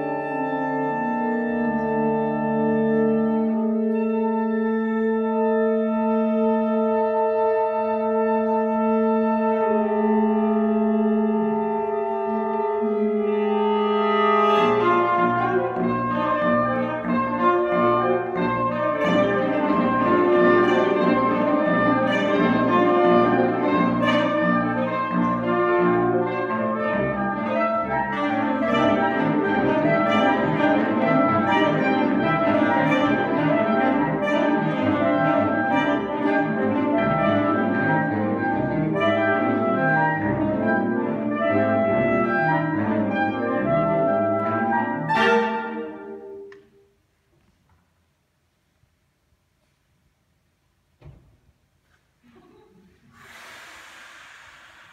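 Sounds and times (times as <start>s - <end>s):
saxophone ensemble improvising: 0.0s - 46.7s.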